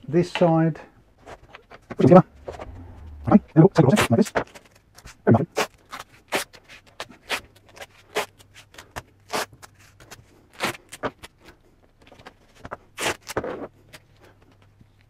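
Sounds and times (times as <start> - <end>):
faint low hum: 2.0 - 4.0
masking tape ripping: 3.8 - 11.5, 13.0 - 13.9.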